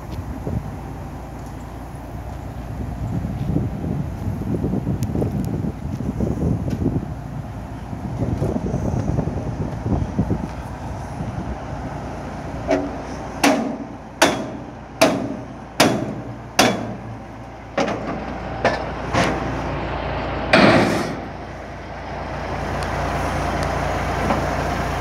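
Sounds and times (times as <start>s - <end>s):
low engine drone: 0.0s - 25.0s
hammer blows on metal: 12.7s - 17.1s.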